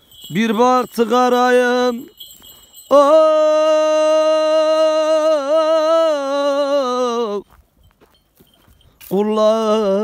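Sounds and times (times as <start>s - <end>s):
man singing unaccompanied: 0.2s - 2.2s, 2.8s - 7.5s, 9.0s - 10.0s.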